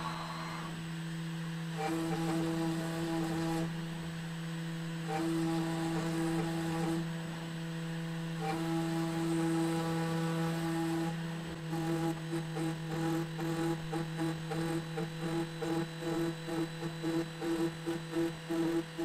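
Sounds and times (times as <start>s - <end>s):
motor whine: 0.0s - 19.0s
router spindle humming: 0.0s - 19.0s.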